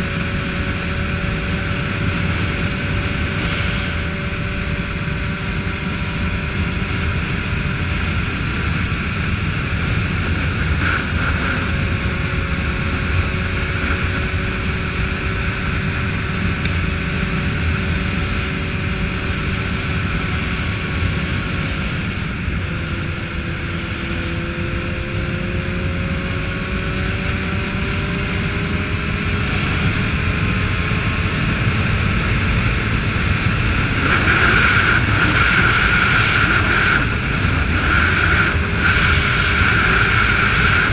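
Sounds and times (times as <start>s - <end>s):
motorcycle engine running: 0.0s - 40.9s
wind rushing over microphone: 0.0s - 40.9s.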